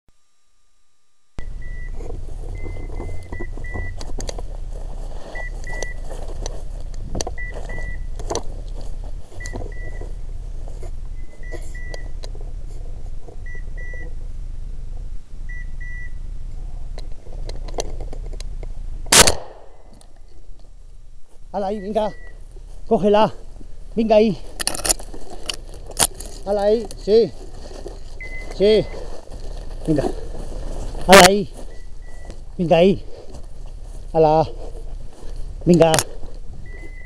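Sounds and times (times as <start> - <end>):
brush and twigs rustling and snapping: 1.9 - 13.4, 17.0 - 36.9
beeper collar double beeps: 21.6 - 22.4.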